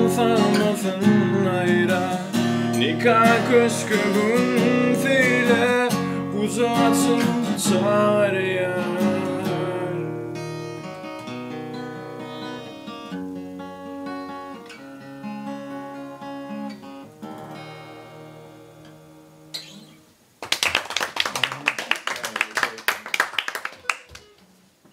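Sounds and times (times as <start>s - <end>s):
acoustic guitar chords: 0.0s - 20.2s
people clapping: 20.4s - 24.4s.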